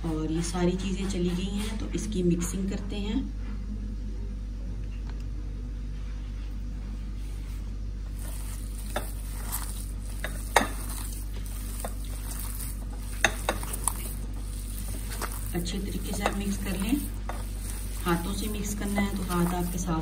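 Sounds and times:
steady low hum: 0.0s - 20.0s
hand squishing mashed potato: 8.1s - 20.0s.

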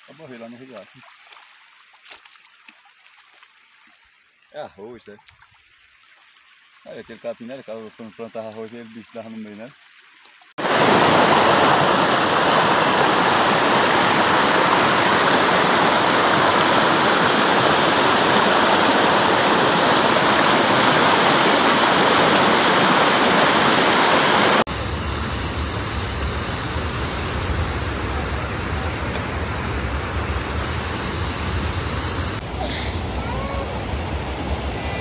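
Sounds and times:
water pouring over a spillway: 0.0s - 4.0s, 10.6s - 24.7s
water rushing over rocks: 10.6s - 24.8s.

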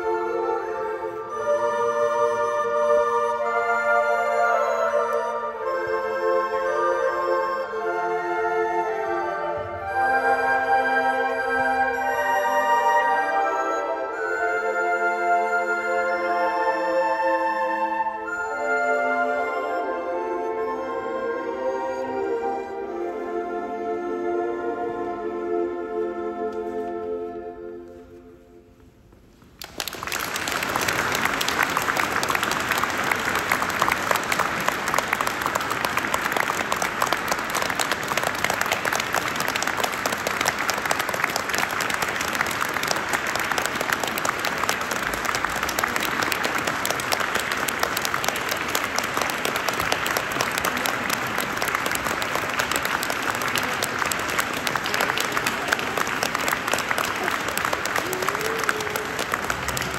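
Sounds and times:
audience clapping: 29.4s - 59.9s.

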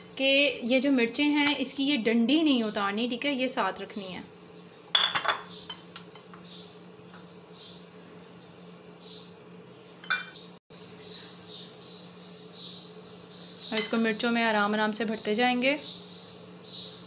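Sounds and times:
dishes clinking: 4.9s - 6.4s, 10.0s - 10.4s.

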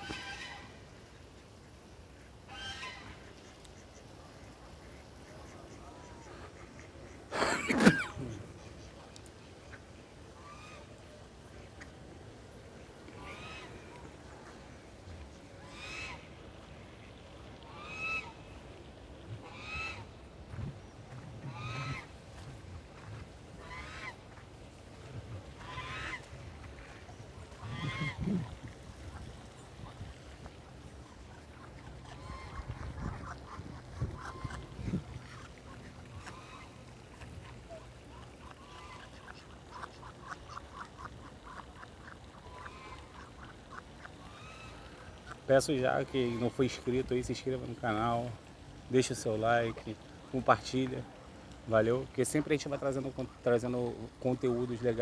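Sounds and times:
waterfowl calling: 0.0s - 0.8s, 2.1s - 8.9s, 10.4s - 11.0s, 13.2s - 14.7s, 15.6s - 16.3s, 17.0s - 18.6s, 19.4s - 20.2s, 21.4s - 22.5s, 23.6s - 24.3s, 25.6s - 30.3s, 30.9s - 47.0s
ducks quacking: 2.1s - 9.0s, 13.1s - 14.7s, 15.6s - 16.3s, 16.9s - 18.5s, 19.4s - 20.2s, 21.4s - 24.4s, 25.3s - 30.2s, 30.9s - 48.3s.

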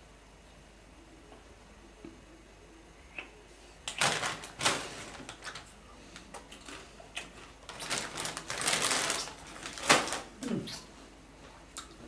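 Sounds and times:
plastic snack packet crinkling: 3.9s - 10.4s.

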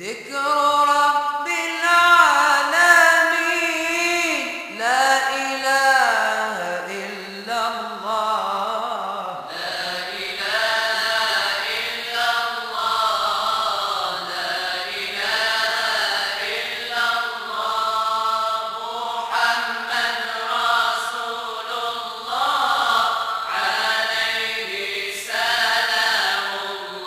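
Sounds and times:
voices chanting long notes: 9.5s - 27.0s.

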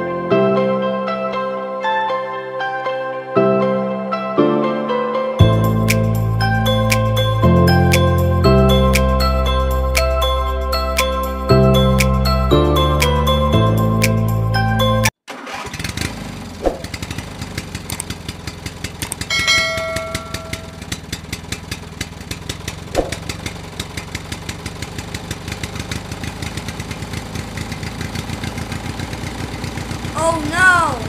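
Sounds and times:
small engine idling: 15.3s - 31.0s.

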